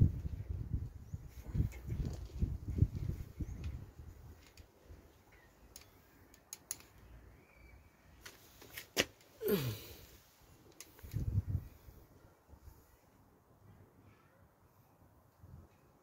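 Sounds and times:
hand tool metallic clicks: 5.7s - 7.0s.

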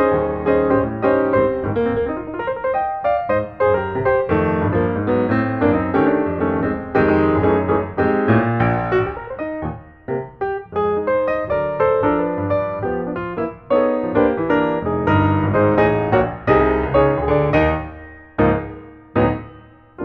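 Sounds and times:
piano music: 0.0s - 20.0s.

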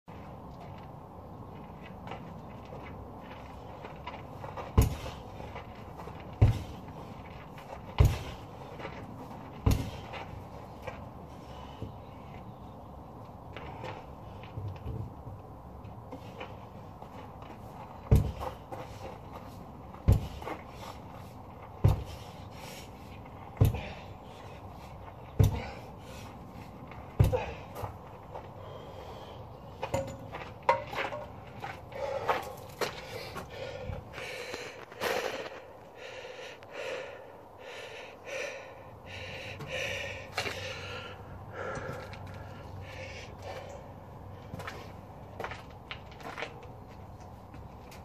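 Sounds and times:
sledgehammer thudding on tyre: 4.5s - 10.4s, 18.0s - 19.0s, 19.9s - 21.0s, 21.8s - 22.5s, 23.5s - 24.1s, 25.2s - 25.9s, 27.0s - 28.0s
person breathing hard: 20.1s - 29.7s, 31.8s - 44.6s.

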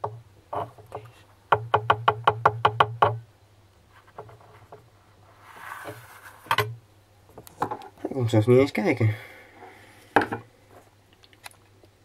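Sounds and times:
rapid knocks on hard surface: 1.5s - 3.2s.

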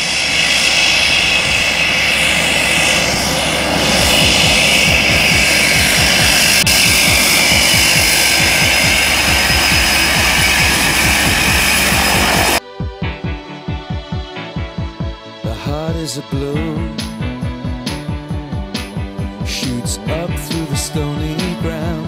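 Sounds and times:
turboprop engine running: 0.0s - 12.6s.

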